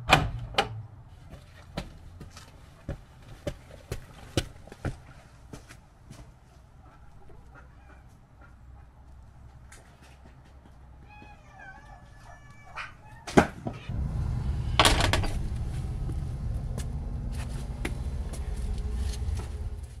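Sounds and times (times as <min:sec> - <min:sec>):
cat meowing: 0:11.0 - 0:13.3
microphone handling rumble: 0:13.9 - 0:20.0.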